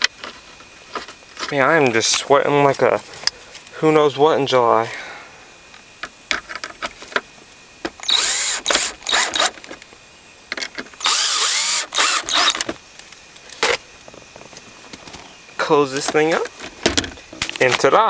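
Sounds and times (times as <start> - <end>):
power drill driving screws: 8.0 - 9.6, 11.0 - 12.7.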